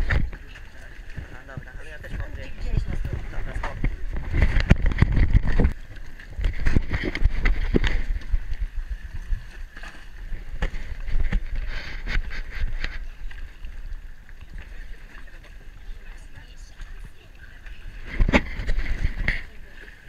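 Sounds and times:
wind rumble on microphone: 0.0s - 19.7s
water sloshing against a boat: 0.0s - 20.0s.

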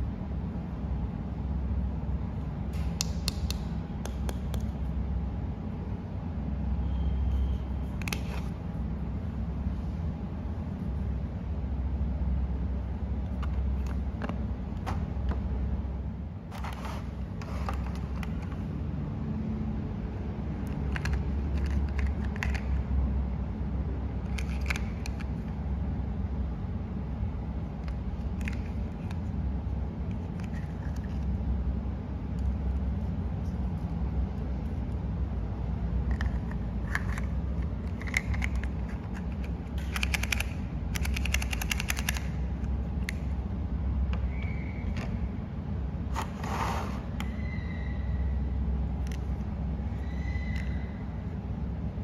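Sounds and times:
steady low rumble: 0.0s - 46.3s
plastic toys clicking and clattering: 20.7s - 22.8s, 36.0s - 42.3s.

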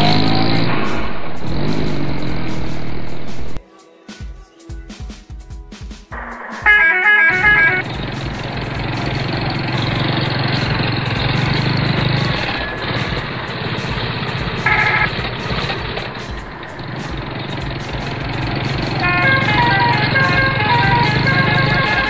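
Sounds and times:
truck engine droning: 0.0s - 3.6s, 6.2s - 22.0s
short horn blast: 6.2s - 13.0s, 14.5s - 16.0s, 16.8s - 22.0s
multi-note truck horn: 6.2s - 22.0s.

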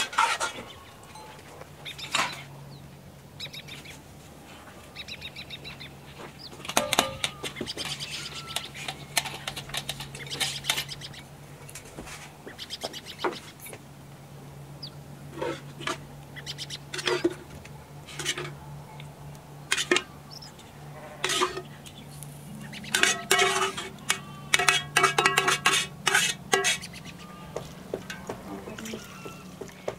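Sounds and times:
low steady hum: 0.0s - 29.9s
short chirping calls: 3.4s - 4.0s, 4.9s - 9.4s, 20.1s - 20.6s
metal ladle clinking on pots: 22.9s - 26.9s.

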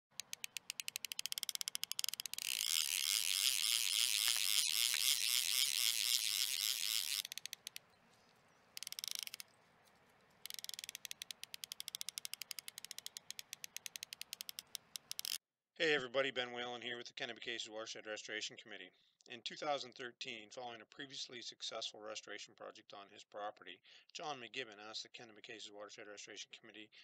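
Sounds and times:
rapid mechanical ticking: 0.1s - 7.9s, 8.8s - 9.5s, 10.4s - 15.4s.

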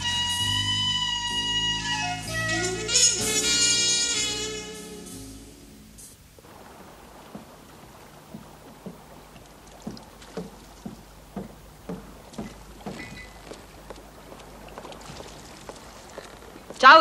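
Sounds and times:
high-heeled footsteps: 7.2s - 17.0s.

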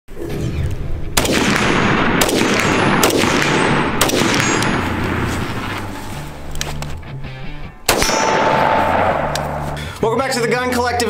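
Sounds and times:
gunshots with ringing echo: 0.5s - 6.0s, 7.9s - 9.8s.

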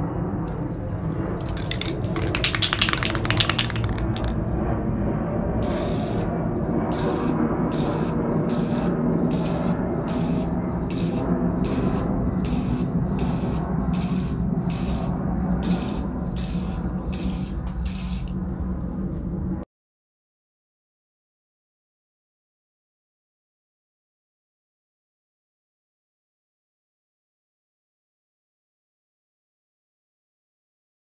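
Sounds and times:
spray paint can hissing: 1.4s - 4.4s, 5.6s - 6.3s, 6.9s - 18.3s.

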